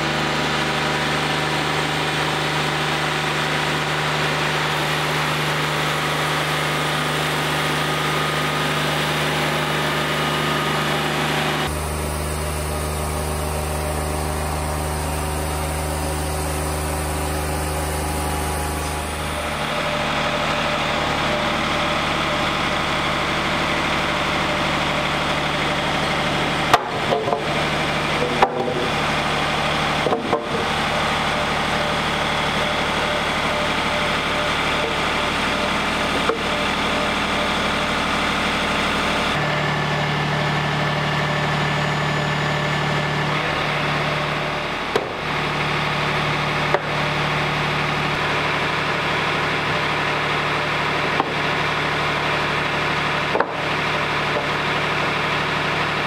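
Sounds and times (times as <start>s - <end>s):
sawmill engine running: 0.0s - 56.0s
boards knocking: 28.2s - 28.9s, 30.0s - 30.6s, 53.3s - 53.6s.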